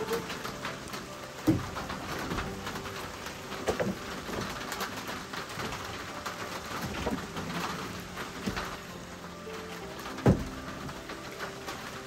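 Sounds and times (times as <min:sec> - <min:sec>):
wooden boards knocking on floor: 0:00.0 - 0:02.9, 0:03.5 - 0:05.8, 0:10.1 - 0:11.5
rain pattering: 0:00.0 - 0:12.0.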